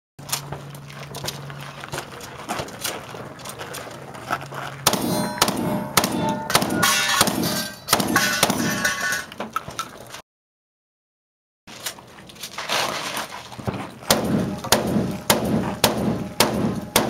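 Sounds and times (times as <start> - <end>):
shotgun shots: 4.9 - 8.9, 14.1 - 17.0
steel targets clanging: 4.9 - 9.6, 14.1 - 17.0.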